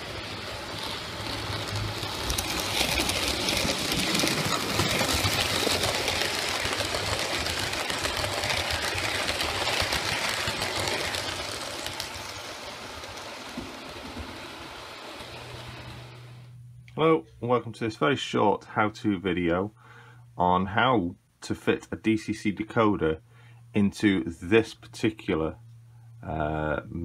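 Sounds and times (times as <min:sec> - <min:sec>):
model train rattling past: 0:00.0 - 0:16.5.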